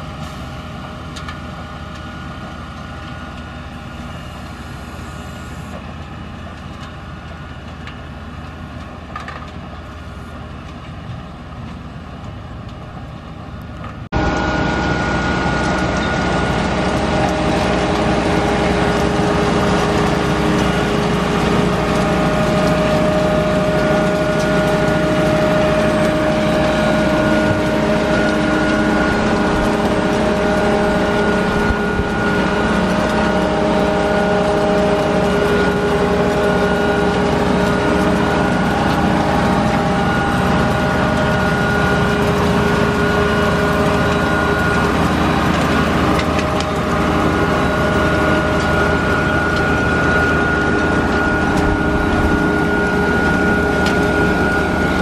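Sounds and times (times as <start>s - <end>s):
engine drone: 0.0s - 55.0s
machinery humming: 0.0s - 55.0s.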